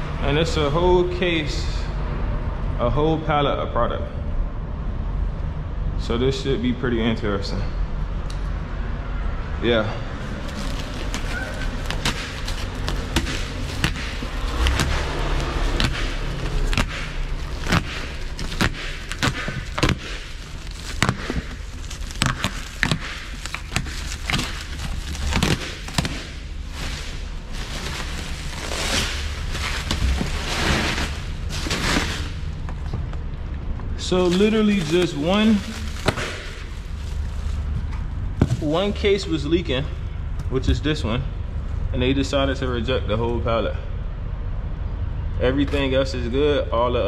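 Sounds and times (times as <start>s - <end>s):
steady low hum: 0.0s - 47.0s
plastic wrap crackling and snapping: 10.2s - 33.4s, 34.0s - 38.8s.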